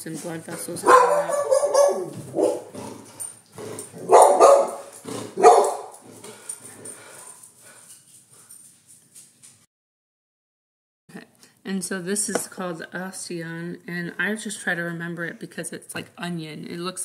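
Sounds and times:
dog barking: 0:00.8 - 0:02.7, 0:04.0 - 0:06.0.

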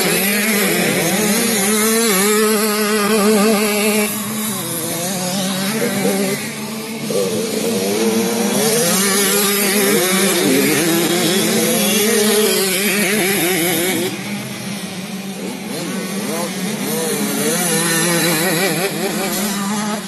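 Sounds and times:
motocross bikes revving: 0:00.0 - 0:20.0.

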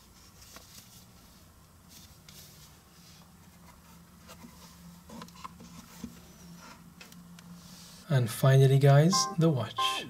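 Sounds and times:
hands rustling paper and leather: 0:00.0 - 0:06.9
low steady hum: 0:00.0 - 0:10.0.

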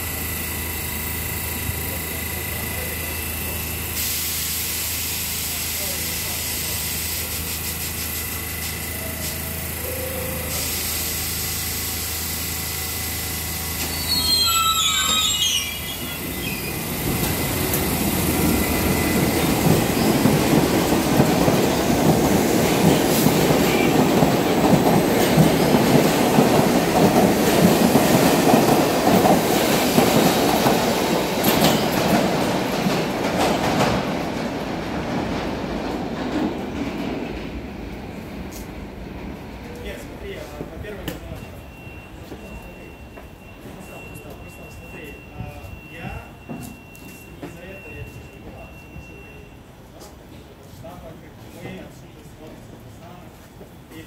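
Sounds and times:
subway train humming: 0:00.0 - 0:54.0
train wheels rumbling on rails: 0:00.0 - 0:54.0
train brake squeal: 0:02.8 - 0:12.1, 0:13.1 - 0:20.2, 0:41.2 - 0:50.1.

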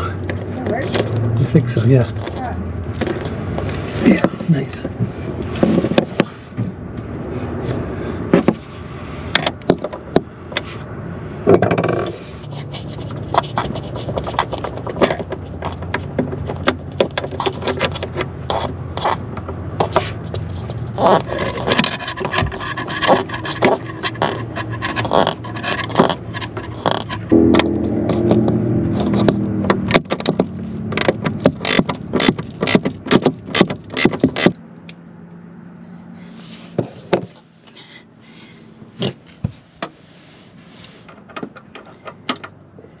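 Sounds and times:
scraping on metal rail: 0:11.8 - 0:34.6.

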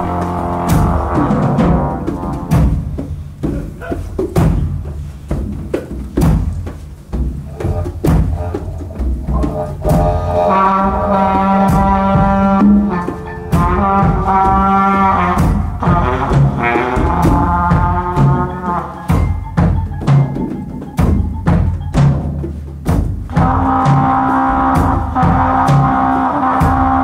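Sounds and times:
brass horn long notes: 0:00.0 - 0:02.9, 0:07.5 - 0:19.5, 0:23.3 - 0:27.0
hand drums: 0:00.0 - 0:27.0.

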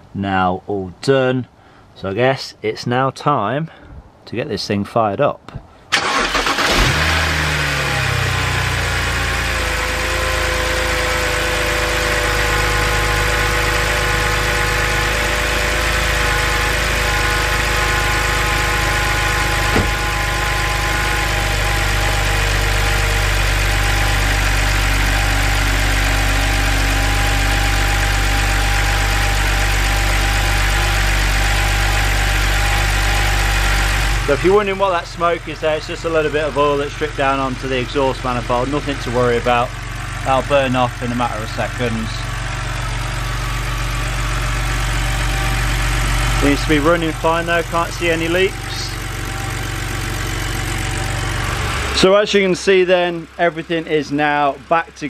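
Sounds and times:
car engine starting and idling: 0:05.8 - 0:55.0.

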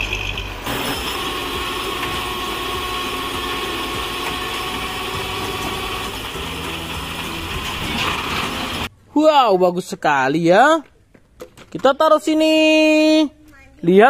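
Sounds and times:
tow truck engine running: 0:00.1 - 0:08.9.

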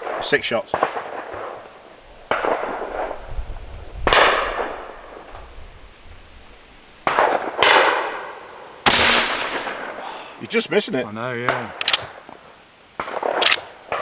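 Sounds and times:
rifle shots: 0:02.3 - 0:03.2, 0:04.0 - 0:04.9, 0:07.0 - 0:08.2, 0:08.8 - 0:10.0, 0:13.0 - 0:14.0.

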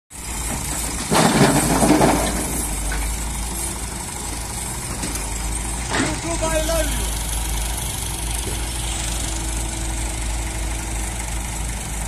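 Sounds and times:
diesel engine running: 0:00.1 - 0:12.0
earth and stones clattering in metal bed: 0:01.0 - 0:03.0.

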